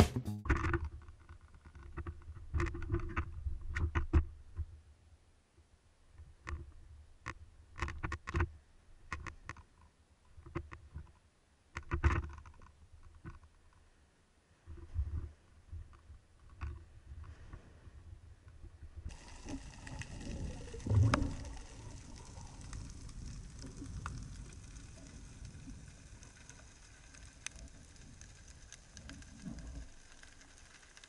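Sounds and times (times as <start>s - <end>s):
diving gear clicking: 19.1s - 31.0s.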